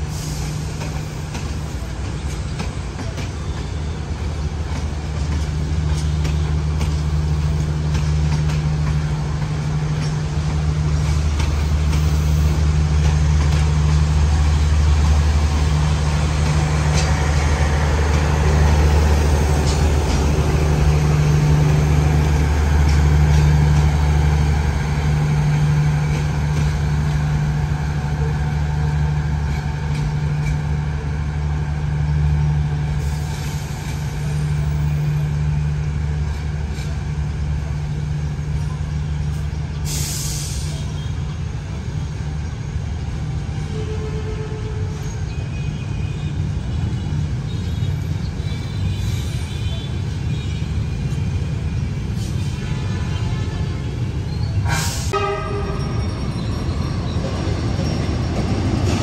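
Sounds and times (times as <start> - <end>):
locomotive engine humming: 0.0 - 59.0
compressed air hiss: 39.8 - 40.8, 54.7 - 55.2.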